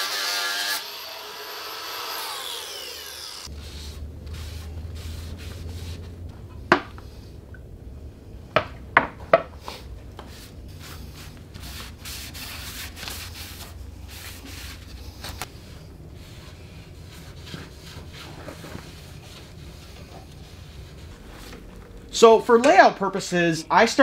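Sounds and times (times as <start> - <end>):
low steady hum: 3.4 - 23.9
cloth rubbing on wood: 3.5 - 6.2, 10.3 - 21.8.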